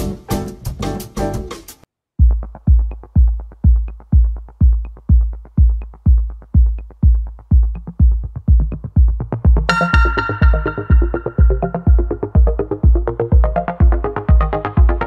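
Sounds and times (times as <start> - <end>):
electronic music: 0.0 - 15.0
heavy kick drum beat: 2.2 - 15.0.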